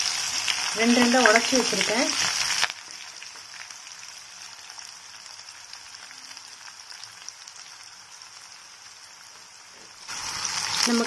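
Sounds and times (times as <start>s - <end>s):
hot oil sizzling and crackling: 0.0s - 11.0s.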